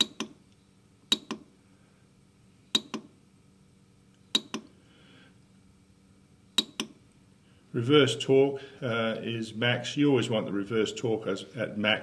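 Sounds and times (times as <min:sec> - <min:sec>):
keypad button clicks: 0:00.0 - 0:00.4, 0:01.1 - 0:01.4, 0:02.8 - 0:03.1, 0:04.4 - 0:04.7, 0:06.6 - 0:07.0.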